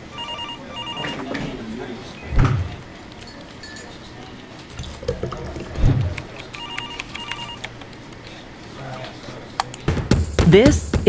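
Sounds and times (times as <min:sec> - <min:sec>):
telephone ringing: 0:00.0 - 0:01.6, 0:06.6 - 0:07.7
computer keyboard typing: 0:06.1 - 0:08.0.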